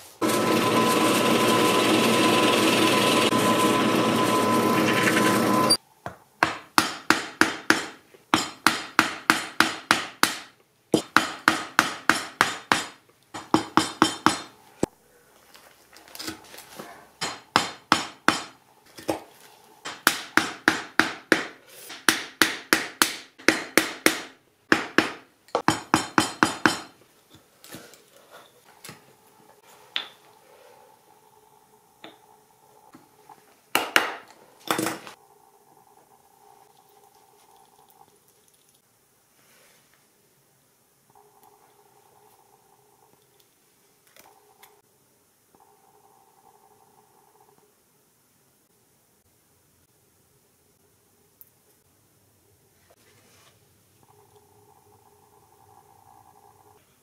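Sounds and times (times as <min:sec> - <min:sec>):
power drill running: 0:00.2 - 0:05.8.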